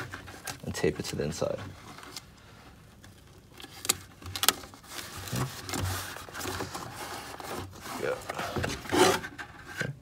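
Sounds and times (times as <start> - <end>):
rubbing against plastic bucket: 4.7 - 9.7.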